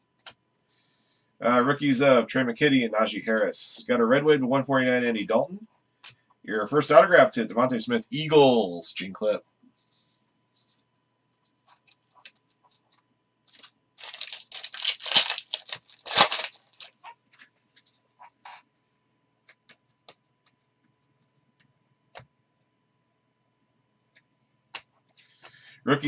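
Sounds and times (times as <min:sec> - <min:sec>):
foil wrapper tearing and crinkling: 0:13.5 - 0:17.0.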